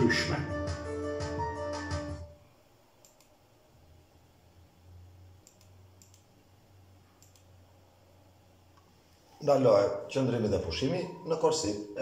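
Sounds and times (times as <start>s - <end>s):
computer mouse clicks: 3.0s - 3.4s, 5.4s - 6.3s, 7.2s - 7.5s.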